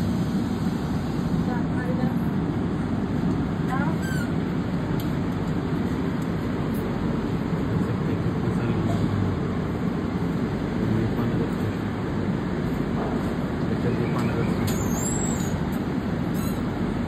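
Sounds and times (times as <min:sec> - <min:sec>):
passenger train rumble and hum: 0:00.0 - 0:17.0.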